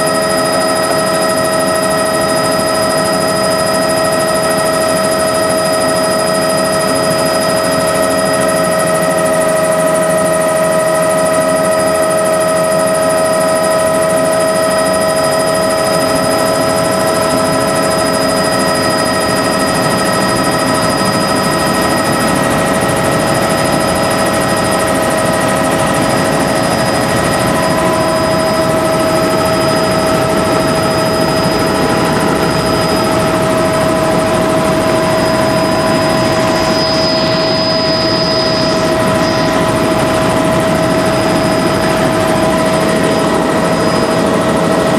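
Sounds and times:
helicopter engine and rotors droning: 0:00.0 - 0:44.9
high whining tones: 0:00.0 - 0:44.9.

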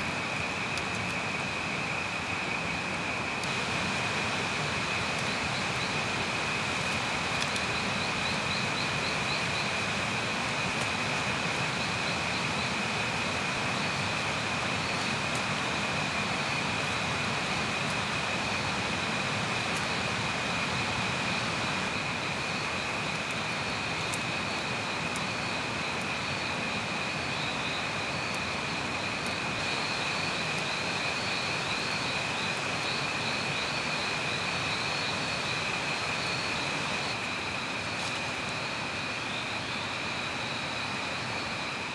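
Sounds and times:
campfire crackles: 0:00.0 - 0:41.9
insects chirring: 0:00.0 - 0:41.9.

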